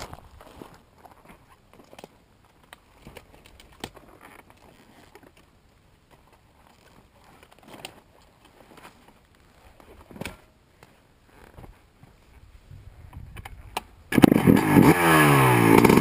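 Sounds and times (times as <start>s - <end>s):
footsteps in dry stubble: 0.0s - 1.6s.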